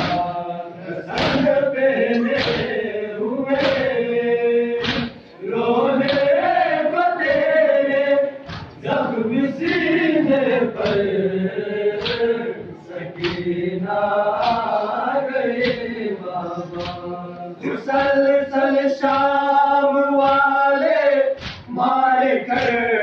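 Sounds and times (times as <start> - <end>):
chest beating slaps: 0.0 - 0.4, 1.1 - 1.6, 2.2 - 2.8, 3.5 - 4.0, 4.8 - 5.2, 8.4 - 8.9, 9.6 - 10.0, 10.8 - 11.2, 12.0 - 12.3, 13.2 - 13.6, 14.4 - 14.8, 15.5 - 15.9, 16.7 - 17.1, 21.3 - 21.8, 22.5 - 22.8
men chanting in unison: 0.0 - 23.0.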